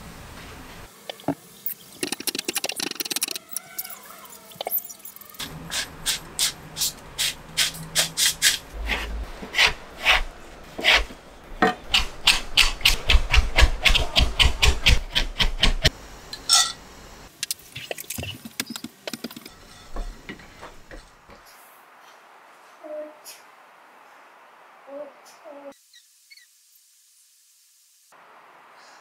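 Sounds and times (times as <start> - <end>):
knife chopping on cutting board: 10.8 - 15.8
spatula scraping frying pan: 19.5 - 21.0.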